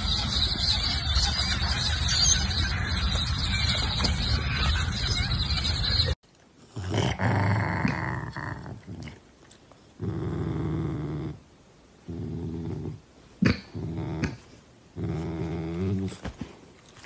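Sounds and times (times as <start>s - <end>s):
dog growling: 6.6s - 9.2s, 10.0s - 11.4s, 12.0s - 16.3s.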